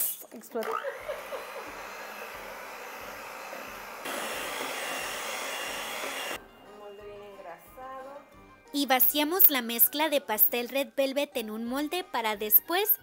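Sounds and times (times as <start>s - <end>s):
electric hand mixer whirring: 0.6s - 6.4s.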